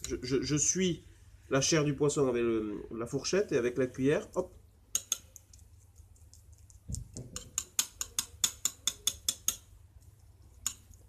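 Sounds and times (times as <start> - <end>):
cutlery clicking on porcelain plate: 4.9 - 5.5, 6.9 - 9.7, 10.6 - 11.0.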